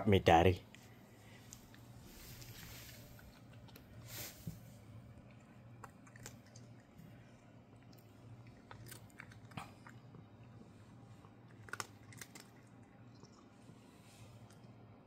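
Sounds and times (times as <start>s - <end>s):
cat crunching dry treats: 5.1s - 13.6s.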